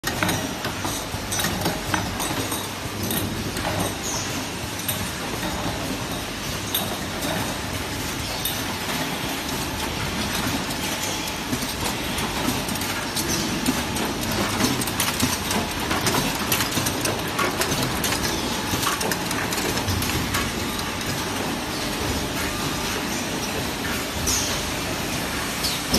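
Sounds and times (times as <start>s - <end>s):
automated machines clattering: 0.0s - 25.9s.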